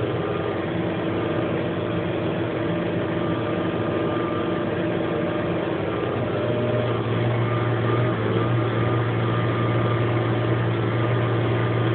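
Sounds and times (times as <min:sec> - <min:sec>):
tractor diesel engine under load: 0:00.0 - 0:11.9.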